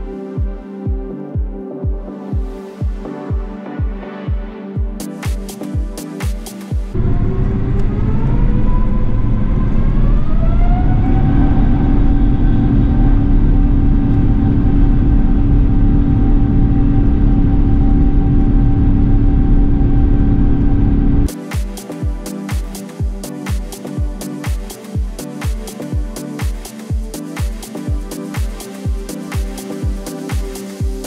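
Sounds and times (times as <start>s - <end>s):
heavy low rumble: 7.0s - 21.3s
jet engine whine: 7.0s - 21.3s.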